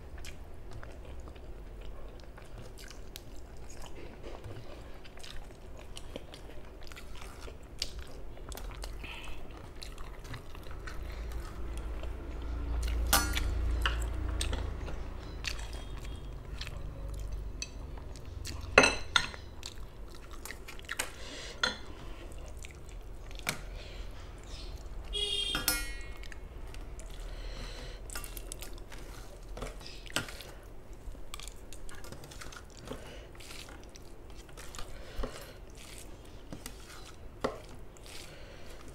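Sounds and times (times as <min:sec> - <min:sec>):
close chewing and mouth sounds: 0:00.0 - 0:25.2, 0:26.1 - 0:38.9
fingers clinking on steel plate: 0:25.6 - 0:26.1.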